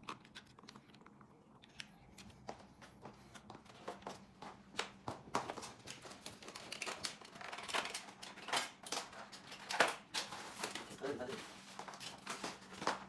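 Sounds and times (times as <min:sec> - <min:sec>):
packing material rustling: 0:05.5 - 0:13.0.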